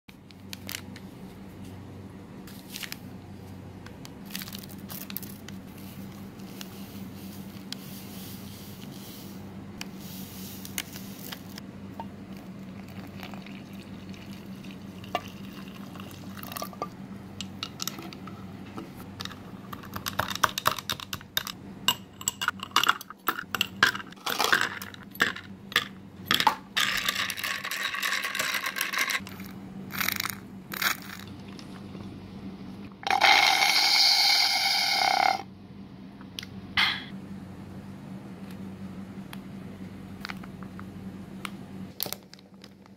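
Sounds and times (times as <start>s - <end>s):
liquid pouring into glass: 12.8s - 16.8s.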